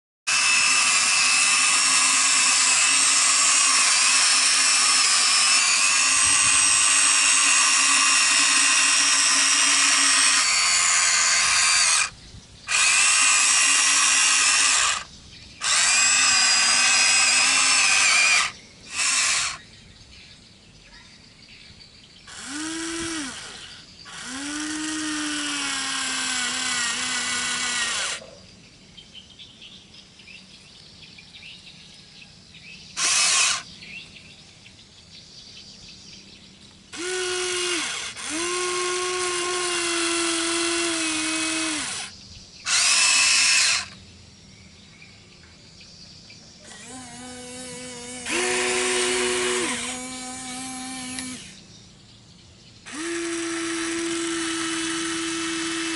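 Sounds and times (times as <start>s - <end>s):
toy electric motors whining: 0.3s - 19.6s, 22.3s - 28.4s, 33.0s - 33.7s, 36.9s - 44.0s, 46.6s - 51.7s, 52.8s - 55.9s.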